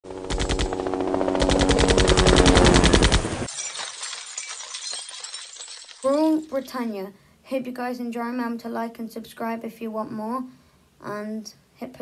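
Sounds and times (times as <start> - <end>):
rapid machine-gun-like rattle: 0.2 - 3.5.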